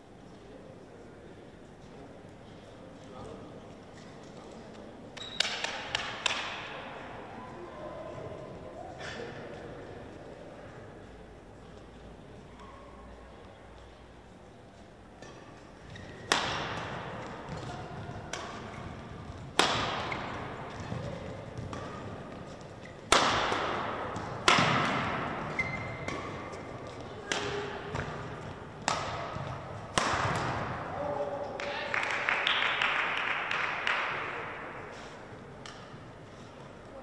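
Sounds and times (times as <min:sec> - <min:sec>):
court shoes squeaking: 0:05.2 - 0:05.7, 0:14.8 - 0:23.2, 0:24.1 - 0:30.6
racket hitting shuttlecock: 0:05.4 - 0:06.8, 0:15.2 - 0:31.0, 0:35.6 - 0:36.1.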